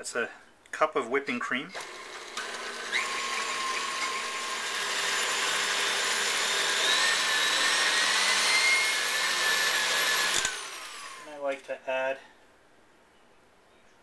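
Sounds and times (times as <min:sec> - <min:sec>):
stand mixer whipping cream: 0:01.8 - 0:11.2.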